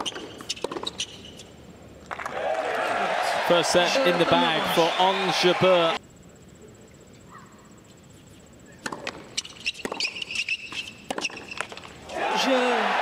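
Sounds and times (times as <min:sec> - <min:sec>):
racquet hitting tennis ball: 0:00.0 - 0:01.1, 0:08.8 - 0:12.9
tennis ball bounces: 0:00.0 - 0:01.2, 0:08.8 - 0:11.9.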